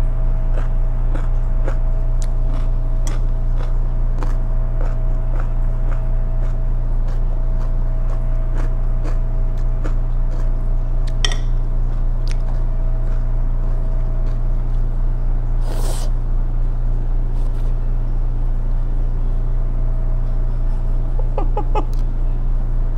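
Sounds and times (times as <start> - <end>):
low electrical hum: 0.0 - 22.9
chewing clicks: 0.5 - 14.9
slurp: 15.6 - 16.2.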